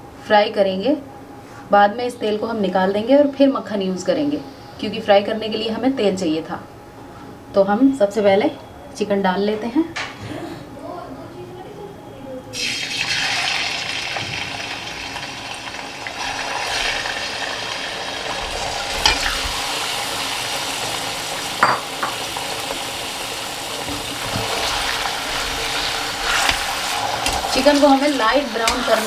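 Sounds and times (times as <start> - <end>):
chicken sizzling in hot oil: 12.6 - 29.0
spatula stirring: 24.2 - 29.0.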